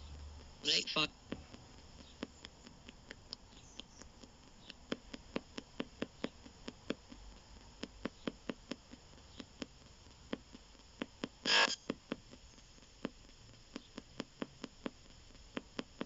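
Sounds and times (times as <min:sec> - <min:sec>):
faint radio static: 0:00.0 - 0:02.5, 0:11.3 - 0:12.5
fast sharp clicks: 0:00.0 - 0:16.0.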